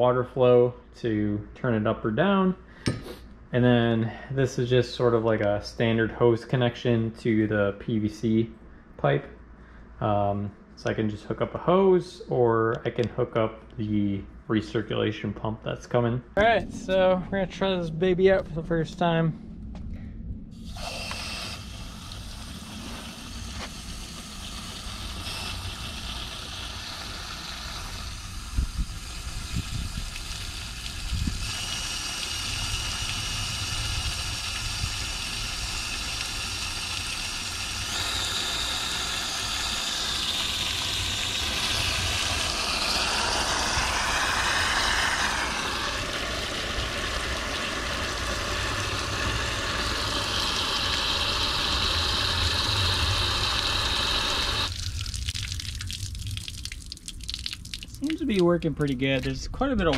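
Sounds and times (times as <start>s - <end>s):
water rushing through sluice: 22.2s - 59.4s.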